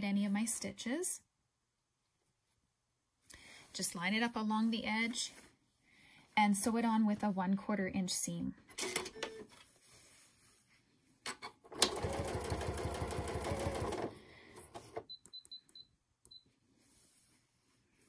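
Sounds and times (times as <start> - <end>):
sewing machine stitching: 11.7 - 15.0.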